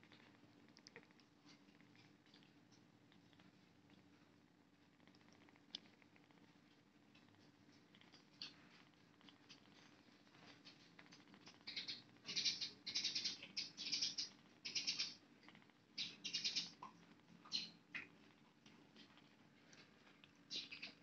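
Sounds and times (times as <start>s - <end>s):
kittens squeaking: 10.6s - 18.2s, 20.4s - 21.0s.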